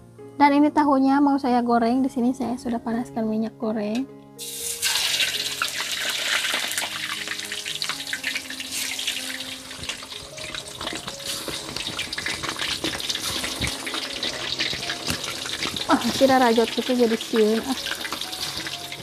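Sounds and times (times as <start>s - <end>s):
tofu sizzling in hot oil: 4.4s - 19.0s.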